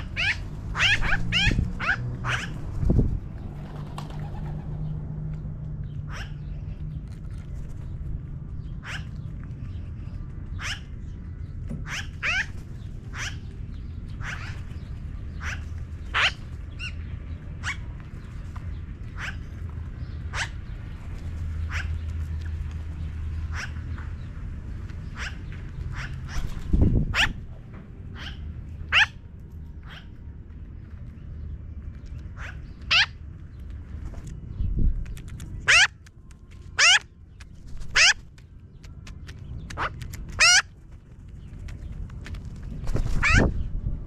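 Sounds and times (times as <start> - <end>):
magpies calling: 0.0 - 2.6, 6.0 - 6.8, 8.6 - 11.2, 11.8 - 22.6, 23.3 - 24.3, 25.0 - 27.4, 28.1 - 30.2, 32.2 - 33.3, 35.5 - 36.0, 36.7 - 37.1, 37.7 - 38.4, 39.2 - 40.8, 42.8 - 43.7.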